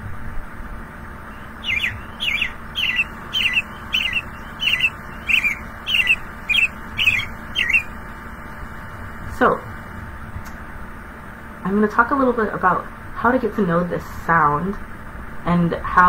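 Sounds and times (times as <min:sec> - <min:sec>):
robin singing whistled phrases: 0:01.3 - 0:08.0.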